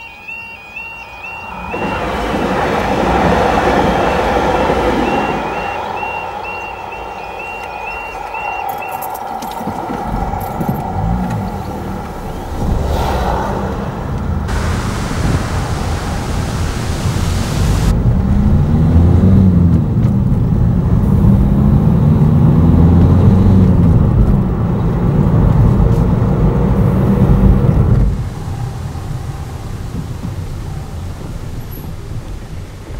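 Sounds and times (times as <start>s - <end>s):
road and wind noise: 0.0s - 32.9s
car engine accelerating and slowing: 1.2s - 32.9s
hiss: 14.5s - 18.0s.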